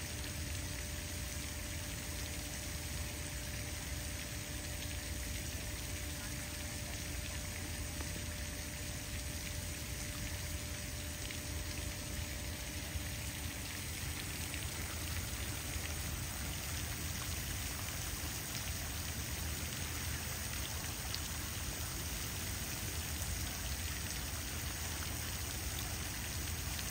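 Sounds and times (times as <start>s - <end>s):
faint steady hum: 0.0s - 26.9s
fountain water splashing: 0.0s - 26.9s.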